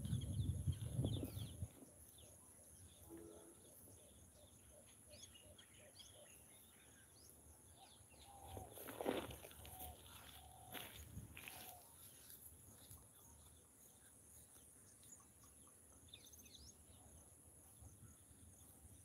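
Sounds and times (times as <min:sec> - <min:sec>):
wild birds chirping: 0:00.0 - 0:19.0.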